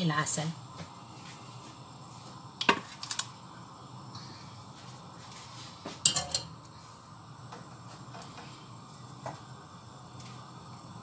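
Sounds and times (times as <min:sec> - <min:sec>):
skimmer clattering into pot: 0:06.0 - 0:06.5.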